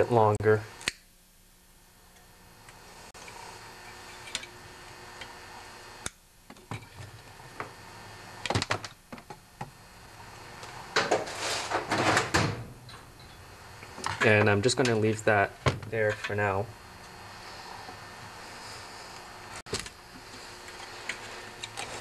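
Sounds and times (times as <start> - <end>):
rustling scrape of tools: 11.1 - 12.2.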